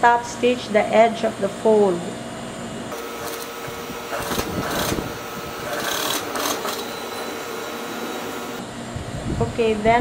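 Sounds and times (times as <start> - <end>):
sewing machine stitching: 2.9 - 8.6.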